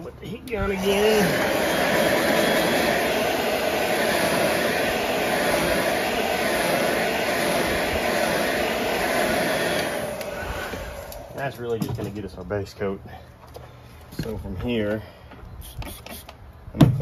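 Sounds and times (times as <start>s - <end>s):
heat gun fan blowing: 0.0s - 13.0s.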